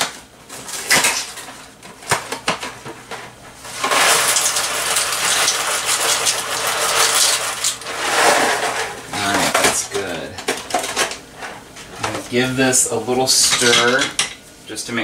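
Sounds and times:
pasta pouring into a pot: 0:03.7 - 0:08.4.

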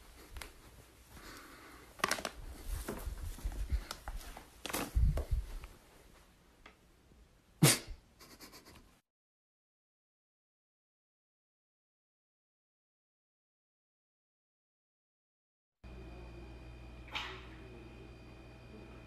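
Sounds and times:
foil bag rustling: 0:01.9 - 0:05.7.

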